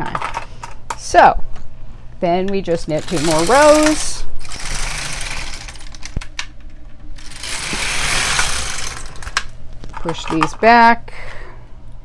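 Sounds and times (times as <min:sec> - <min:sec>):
knitting machine carriage rattling: 0:02.8 - 0:06.4, 0:07.2 - 0:10.6.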